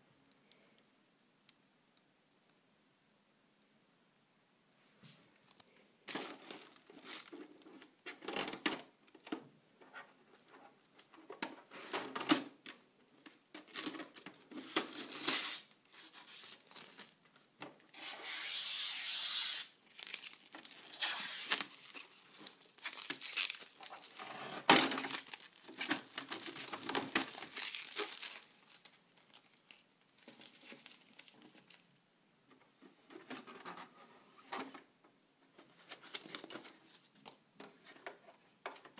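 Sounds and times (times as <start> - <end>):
plastic packaging crinkling: 6.1 - 8.7, 12.0 - 17.4, 19.6 - 32.0
plastic tearing: 11.8 - 17.2, 17.9 - 31.9.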